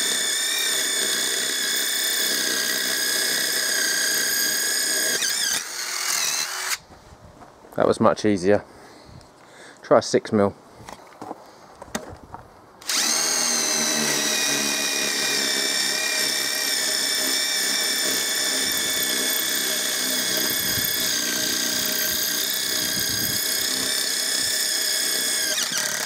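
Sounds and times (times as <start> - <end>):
impact driver drilling into concrete: 0.0 - 6.8, 12.8 - 26.0.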